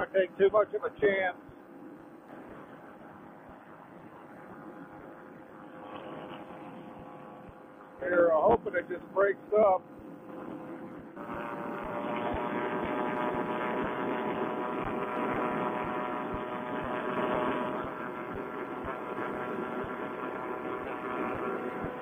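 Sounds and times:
paramotor engine droning: 0.0 - 22.0.

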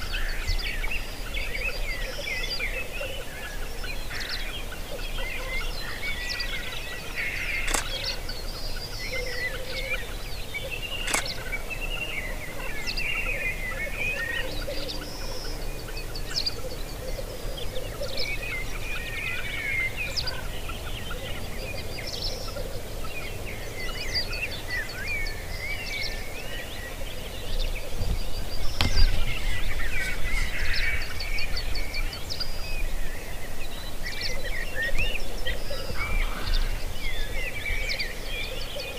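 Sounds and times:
high chirping bird calls: 3.9 - 17.0
sharp clicks: 7.6 - 8.2, 11.0 - 11.5.

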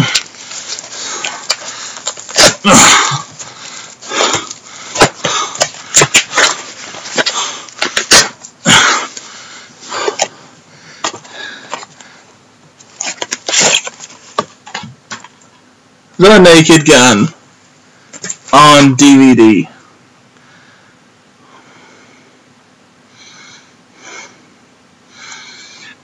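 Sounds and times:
packaging crinkling and tearing: 13.0 - 14.1.

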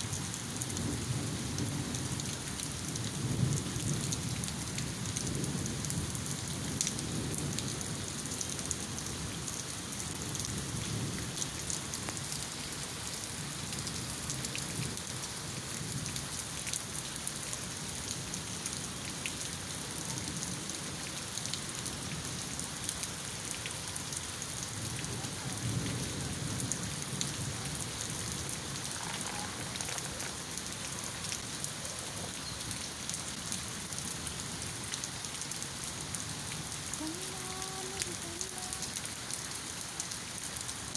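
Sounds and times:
heavy rain on paving and leaves: 0.0 - 40.9
raindrops ticking: 0.1 - 40.9.

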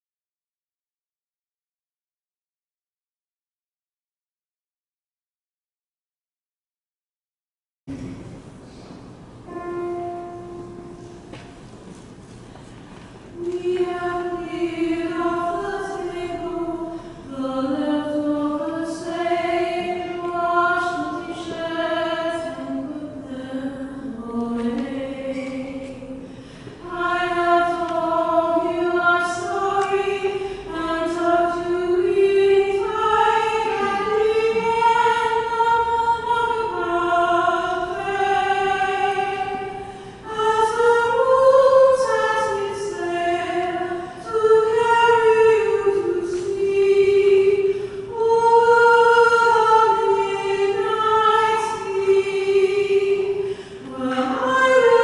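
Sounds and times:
women's choir singing a lullaby: 9.5 - 11.6, 13.2 - 55.0.

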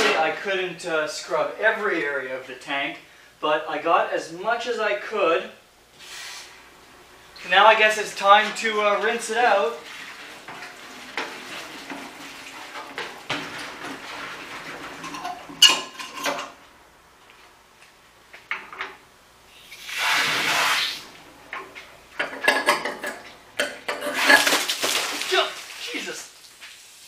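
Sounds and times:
hose rattling against metal tank: 8.2 - 16.6
water spraying hiss: 19.5 - 21.2, 24.2 - 27.0.

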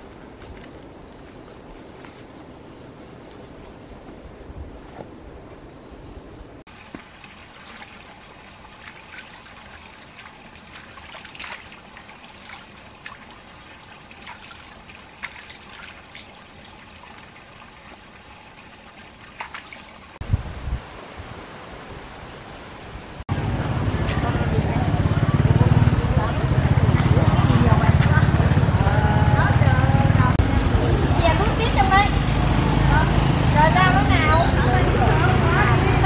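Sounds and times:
water trickling and dripping: 6.7 - 20.2.

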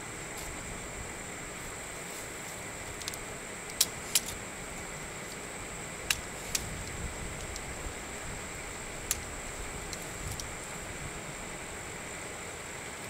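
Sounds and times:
background hiss: 0.0 - 13.0
faint high-pitched whine: 0.0 - 13.0.

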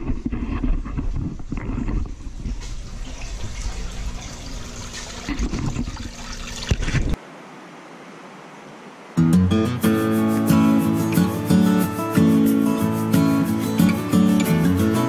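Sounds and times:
water sloshing in a tank: 2.2 - 7.2.

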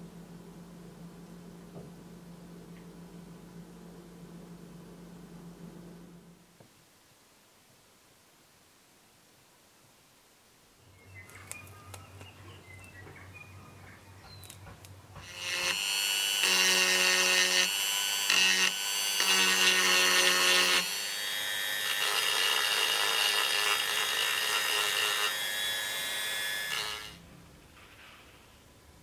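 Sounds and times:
rotary tool sanding whine: 15.2 - 27.2.

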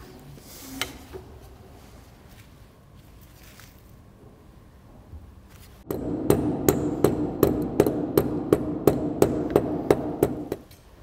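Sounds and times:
mallet striking metal: 5.9 - 10.7.

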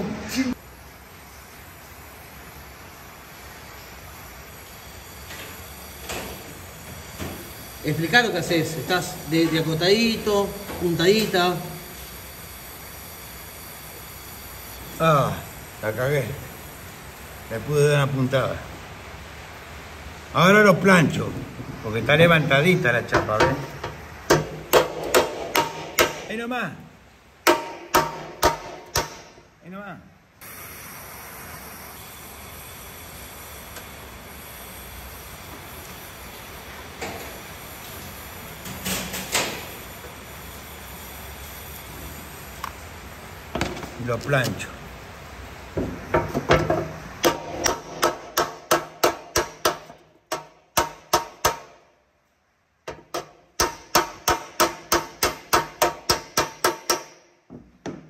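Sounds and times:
welding torch flame hissing: 0.0 - 29.4, 30.4 - 51.5
hammer striking metal: 23.0 - 26.4, 27.4 - 29.5, 45.8 - 51.8, 52.9 - 57.3.

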